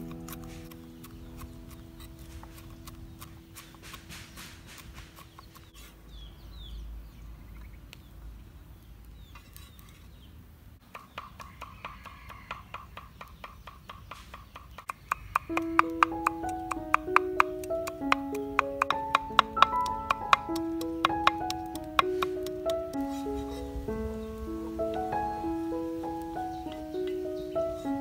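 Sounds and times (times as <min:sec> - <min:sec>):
knife chopping on wooden board: 0:00.1 - 0:05.7, 0:14.9 - 0:23.1.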